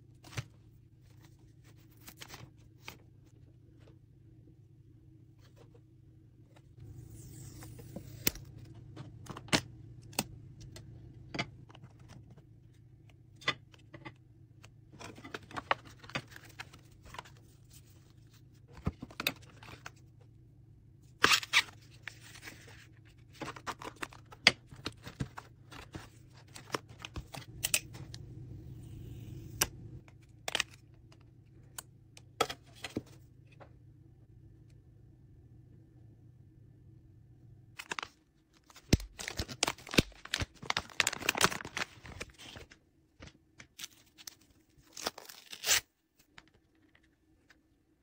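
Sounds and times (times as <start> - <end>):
plastic and card rustling: 0.2 - 3.9, 6.7 - 20.0, 21.2 - 31.4, 37.8 - 47.7.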